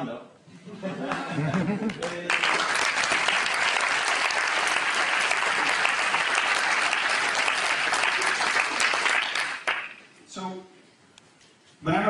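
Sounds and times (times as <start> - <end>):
audience applauding: 1.1 - 10.1.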